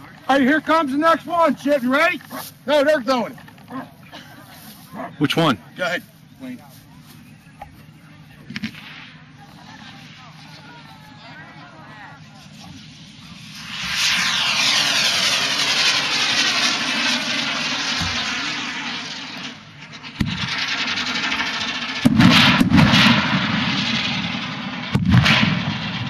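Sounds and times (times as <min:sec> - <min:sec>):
firework rushing hiss: 0:00.3 - 0:03.4, 0:08.4 - 0:26.0
firework bang: 0:08.4 - 0:11.0, 0:12.4 - 0:26.0
firework boom: 0:12.5 - 0:26.0.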